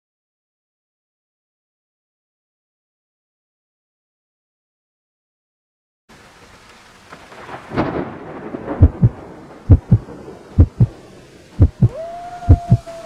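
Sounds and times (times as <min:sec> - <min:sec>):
heartbeat low thumps: 0:08.8 - 0:10.9, 0:11.6 - 0:11.9
falling steady tone: 0:08.8 - 0:13.0.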